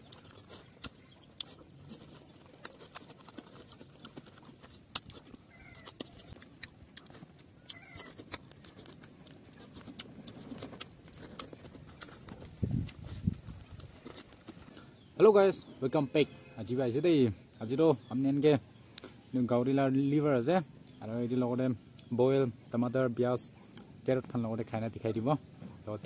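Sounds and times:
wet mouth clicks: 0.0s - 14.8s, 18.9s - 19.2s, 23.7s - 23.9s
chewing and lip smacking: 0.0s - 15.1s, 18.8s - 19.2s, 23.6s - 24.0s.

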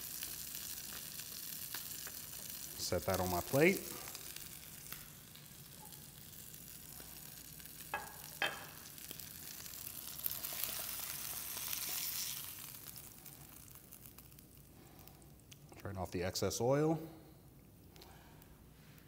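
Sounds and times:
hot oil sizzling: 0.0s - 15.6s
ceramic plate clinking: 8.0s - 8.8s.

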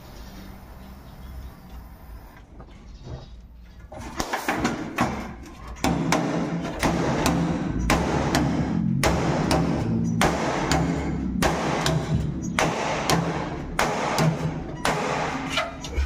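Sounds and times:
sharp knocks: 4.2s - 15.5s.

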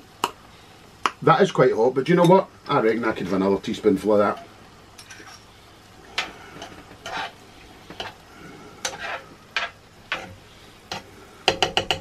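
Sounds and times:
food frying in pan: 0.0s - 12.0s
teaspoon scraping and clinking: 5.0s - 5.5s.

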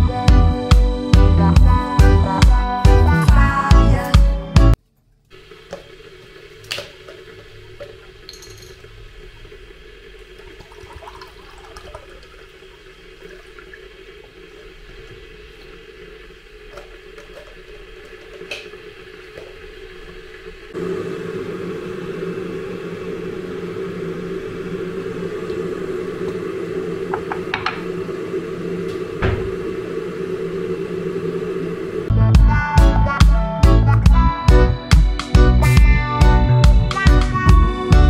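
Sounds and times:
kitchen appliance humming: 0.0s - 32.4s.

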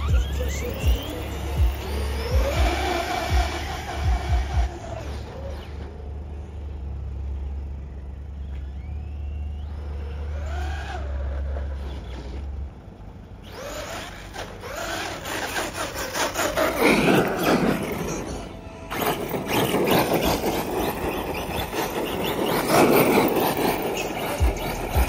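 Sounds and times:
radio-controlled car motor whining: 0.0s - 6.9s, 7.5s - 25.0s
steady low hum: 0.0s - 25.0s
tyre scrub and rattling: 15.0s - 25.0s.

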